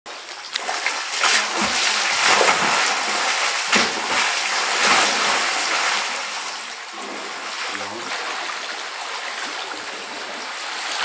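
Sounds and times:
elephant splashing in mud: 0:00.6 - 0:06.4.

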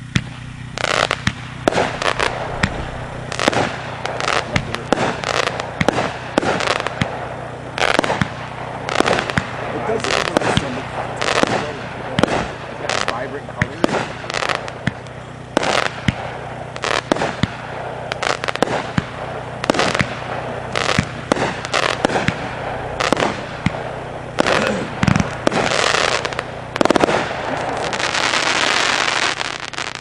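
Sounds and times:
firework launch thumps and bursts: 0:00.0 - 0:07.2, 0:15.6 - 0:30.0
firework crackling hiss: 0:00.0 - 0:30.0.

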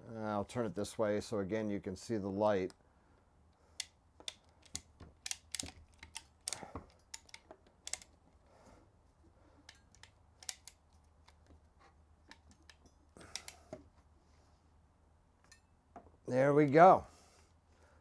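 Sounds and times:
ratcheting clamp tool clicking: 0:03.8 - 0:08.2, 0:09.7 - 0:11.5, 0:12.3 - 0:13.6.

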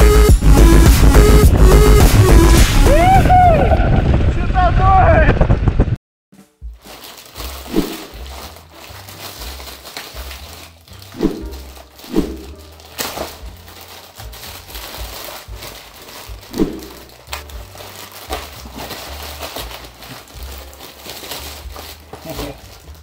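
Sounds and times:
packaging crumpling: 0:06.4 - 0:23.0.

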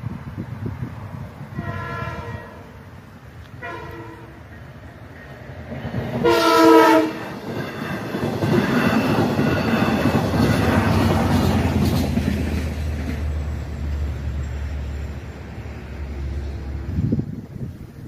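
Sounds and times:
wheel and rail noise: 0:00.0 - 0:18.0
train air horn blast: 0:01.5 - 0:02.9, 0:03.6 - 0:04.5, 0:06.2 - 0:07.2.

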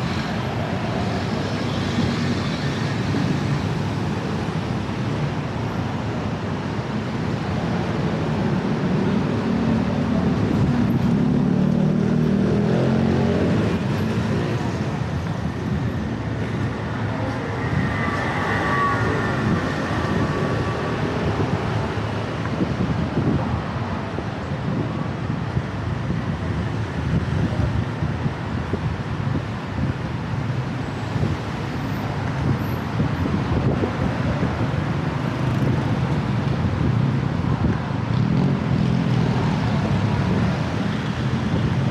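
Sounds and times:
motorbikes passing: 0:00.0 - 0:25.0, 0:32.1 - 0:41.9
cars passing: 0:00.0 - 0:41.9.

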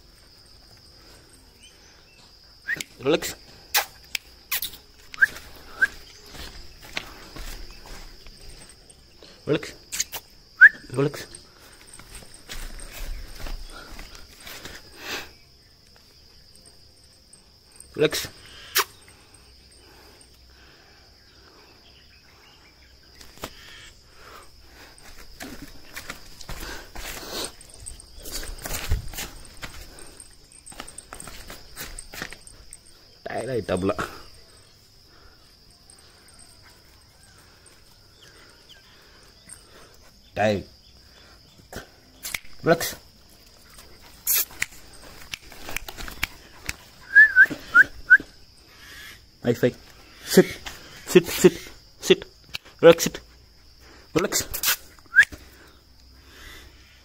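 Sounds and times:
crickets trilling: 0:00.0 - 0:57.0
person whistling: 0:02.6 - 0:02.9, 0:05.2 - 0:06.1, 0:10.6 - 0:10.9, 0:47.0 - 0:48.4, 0:55.1 - 0:55.4
faint scuffs: 0:03.7 - 0:08.8, 0:11.2 - 0:15.0, 0:24.8 - 0:32.9, 0:43.3 - 0:47.8
short hiss: 0:54.5 - 0:54.9.

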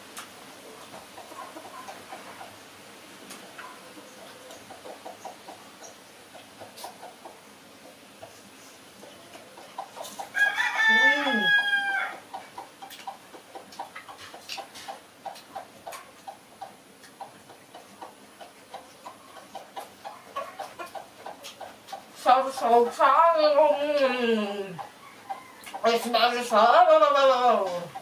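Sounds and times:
rooster crowing: 0:10.3 - 0:12.2, 0:25.0 - 0:25.7.

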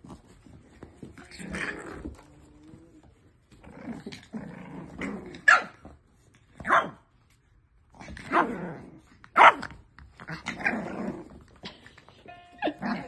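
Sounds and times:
puppies growling: 0:01.0 - 0:05.5, 0:07.8 - 0:09.3, 0:10.2 - 0:11.7.

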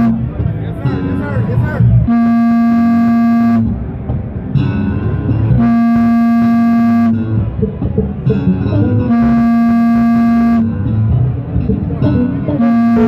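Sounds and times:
sustained bass note: 0:00.0 - 0:00.3, 0:01.9 - 0:07.7, 0:08.6 - 0:11.1, 0:11.8 - 0:13.0
plucked bass guitar lines: 0:00.0 - 0:13.0.

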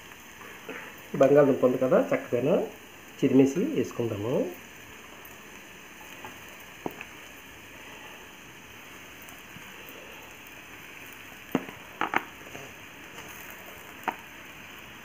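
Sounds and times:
masala sizzling in a pot: 0:00.0 - 0:15.0.

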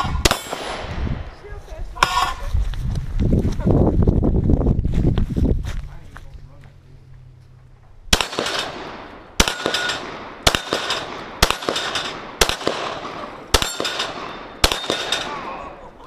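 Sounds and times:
handgun shots with echo: 0:08.1 - 0:15.6.

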